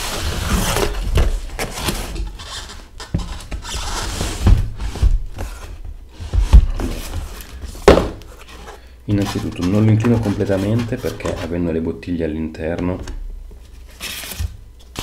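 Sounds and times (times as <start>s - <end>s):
cardboard scraping and rustling: 0.0s - 11.6s, 13.6s - 15.0s
knocks and thumps on box: 4.4s - 8.3s.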